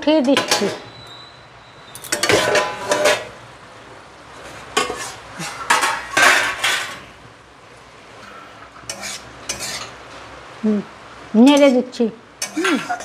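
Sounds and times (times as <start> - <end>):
metal cookware clanking: 0.1 - 1.0, 1.9 - 3.4, 4.7 - 7.1, 8.8 - 10.0, 11.5 - 11.8, 12.4 - 13.0.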